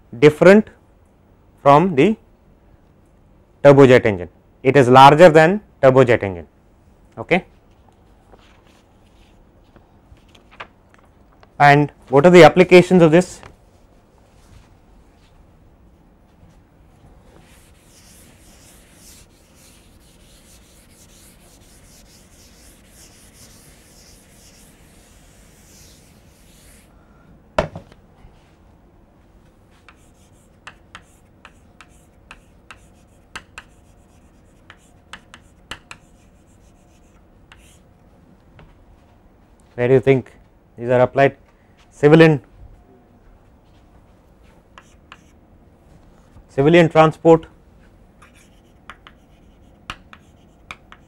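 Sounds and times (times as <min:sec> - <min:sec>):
faint scratchy rubbing: 0:17.3 - 0:26.9
chalk tapping on blackboard: 0:17.4 - 0:26.9, 0:29.8 - 0:37.8, 0:44.8 - 0:45.3, 0:48.2 - 0:51.0.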